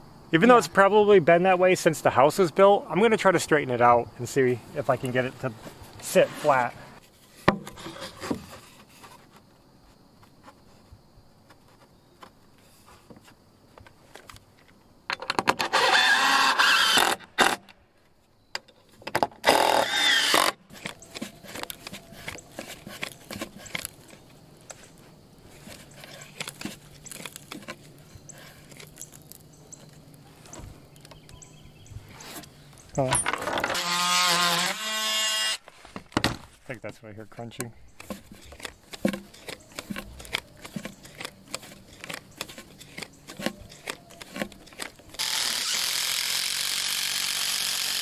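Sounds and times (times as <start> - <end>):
knocks and clicks of wood handling: 7.4 - 9.5, 11.5 - 15.6, 35.8 - 37.0, 37.6 - 45.2
power drill running: 15.7 - 17.6, 19.4 - 20.6, 33.7 - 35.6, 45.2 - 48.0.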